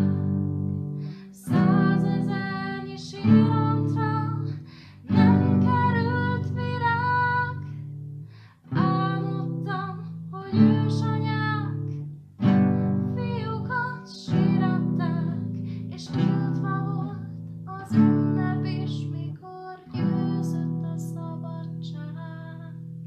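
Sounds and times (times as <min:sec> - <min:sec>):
acoustic guitar strumming chords: 0:05.1 - 0:17.2.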